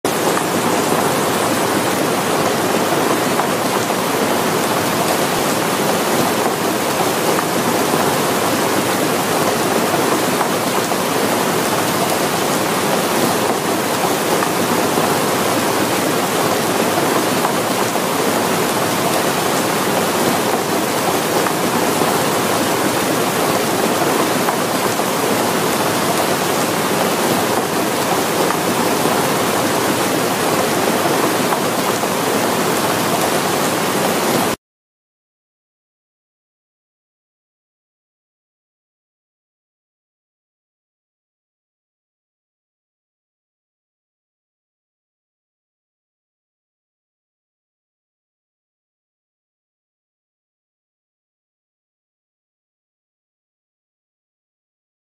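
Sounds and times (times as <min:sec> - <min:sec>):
floodwater rushing: 0:00.1 - 0:34.6
heavy rain pouring: 0:00.1 - 0:34.6.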